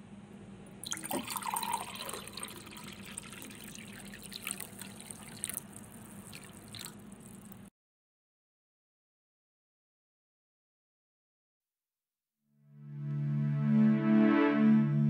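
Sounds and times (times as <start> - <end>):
water dripping into a glass: 0.8 - 7.7.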